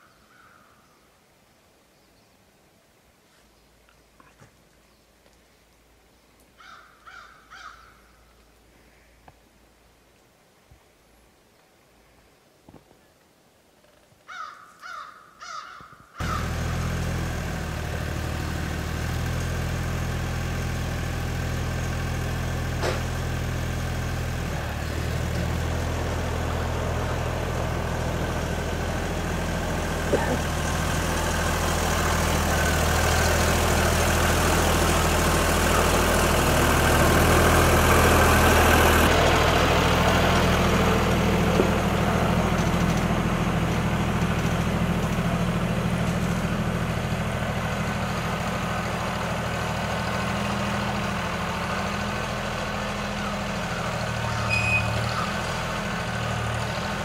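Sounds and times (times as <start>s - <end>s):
tractor engine running: 16.2s - 57.0s.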